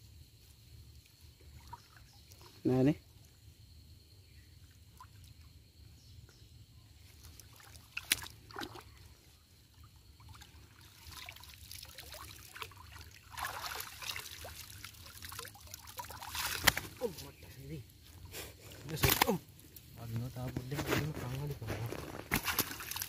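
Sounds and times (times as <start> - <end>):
river water sloshing and trickling: 0.6 - 3.6, 4.2 - 20.0, 21.2 - 23.0
wet net dripping: 7.0 - 9.2, 9.8 - 17.6, 18.8 - 20.0, 21.9 - 23.0
sharp splash: 7.3 - 9.0, 10.2 - 17.4, 22.2 - 23.0.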